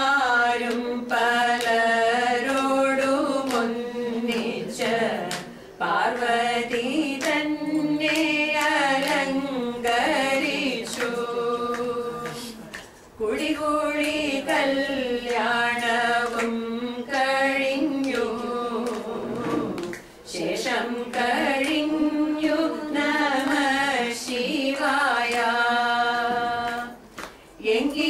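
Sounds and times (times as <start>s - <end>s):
women singing unaccompanied: 0.0s - 28.0s.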